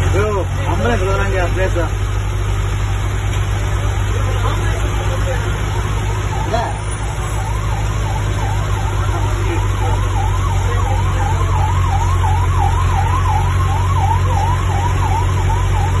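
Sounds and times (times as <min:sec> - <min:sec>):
low engine hum: 0:00.0 - 0:16.0
siren yelping: 0:05.8 - 0:16.0.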